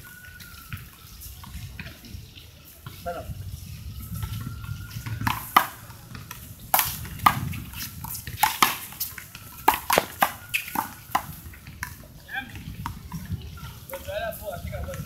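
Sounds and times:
gloved hands slapping ball: 9.6 - 11.3
handball smacking wall and court: 9.6 - 11.3.

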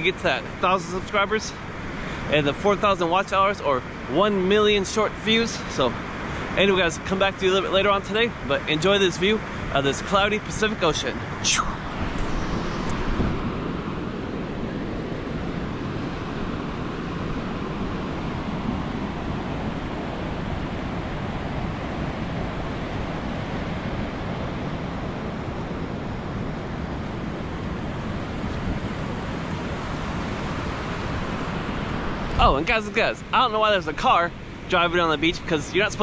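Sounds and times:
wind on microphone: 11.1 - 32.6.

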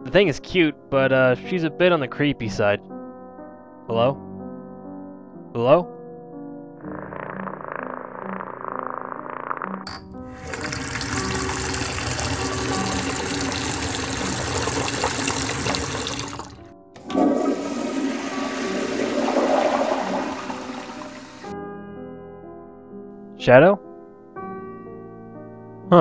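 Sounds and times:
faint background music: 0.0 - 6.3, 21.5 - 26.0
toilet flushing: 10.2 - 21.5.

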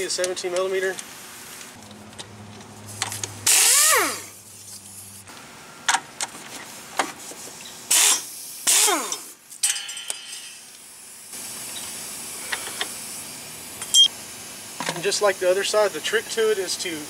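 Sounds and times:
air hissing: 2.9 - 5.3, 7.8 - 16.1.

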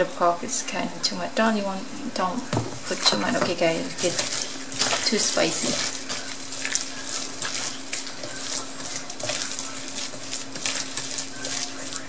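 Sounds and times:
wet squishing of kneaded meat: 2.9 - 12.0.

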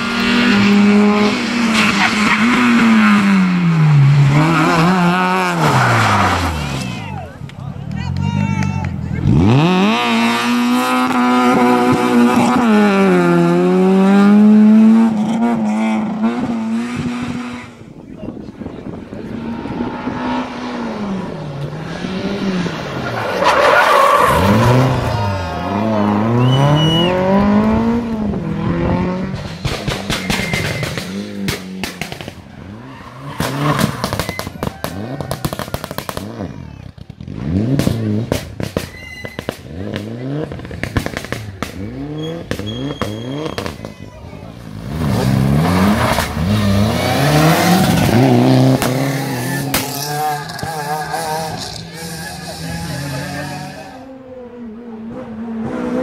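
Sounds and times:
rally car engine revving: 0.0 - 56.0
exhaust pops and crackles: 29.3 - 32.6, 33.4 - 44.1.

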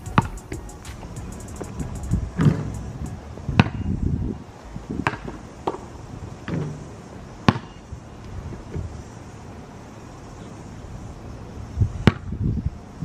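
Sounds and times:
basketball bouncing on asphalt: 0.0 - 2.8, 3.6 - 3.9, 5.0 - 6.8, 7.4 - 7.8, 12.0 - 12.3
basketball striking hoop: 3.6 - 3.8.

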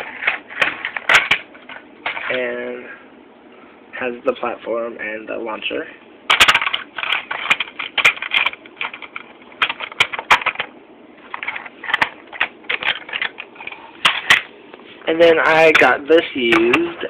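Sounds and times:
plastic toy clicking and clattering: 0.1 - 1.4, 6.3 - 10.7, 11.3 - 14.4, 15.7 - 17.0.

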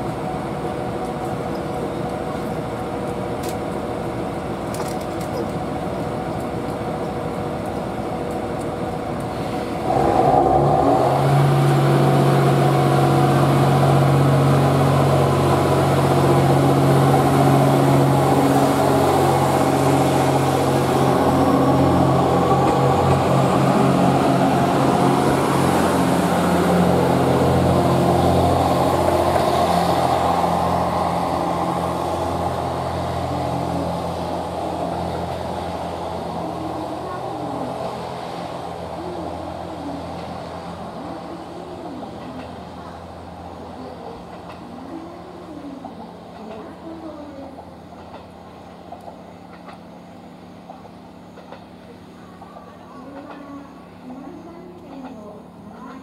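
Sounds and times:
railcar diesel engine drone: 0.0 - 56.0.

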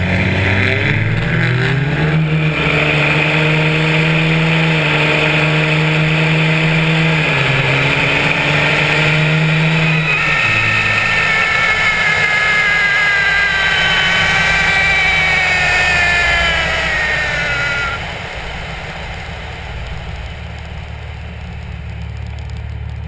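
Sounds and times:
diesel engine at full throttle: 0.0 - 23.0
turbo whistle: 8.2 - 18.9.

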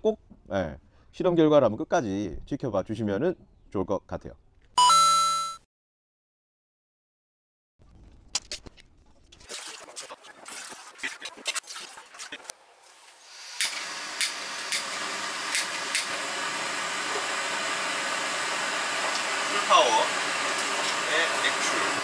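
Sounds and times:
gas flame hissing: 13.2 - 22.0.

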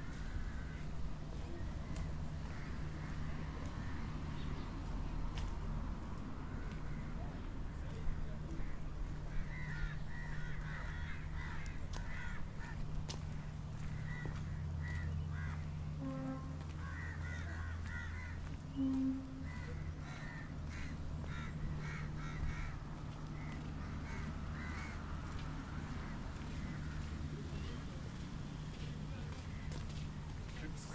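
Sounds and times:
crows cawing: 0.0 - 1.2, 1.8 - 4.1, 8.1 - 16.0, 16.6 - 18.8, 19.4 - 27.2
brief low tone: 18.7 - 19.8.

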